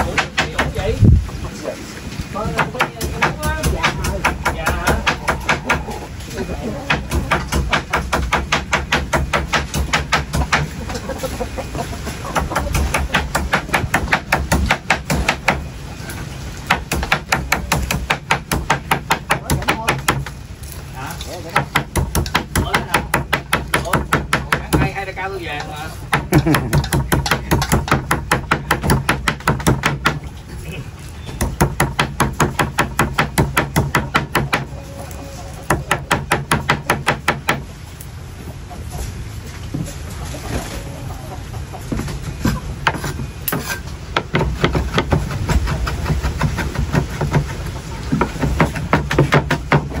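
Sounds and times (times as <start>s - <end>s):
fast chopping on cutting board: 6.9s - 10.7s, 26.1s - 30.2s, 31.4s - 34.7s, 42.9s - 50.0s.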